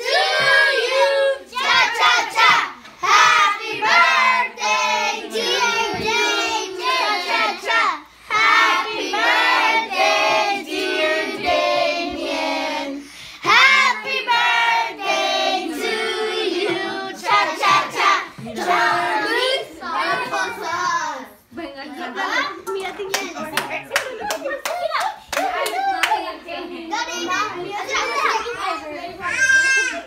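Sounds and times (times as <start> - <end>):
group singing a birthday song: 0.0 - 21.1.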